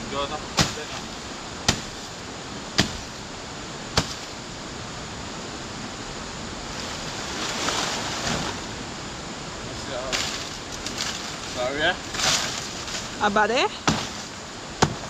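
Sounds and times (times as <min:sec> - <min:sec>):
river water rushing: 0:00.0 - 0:15.0
sharp knocks: 0:00.6 - 0:01.0, 0:01.7 - 0:02.1, 0:02.8 - 0:03.2, 0:04.0 - 0:04.3, 0:13.8 - 0:15.0.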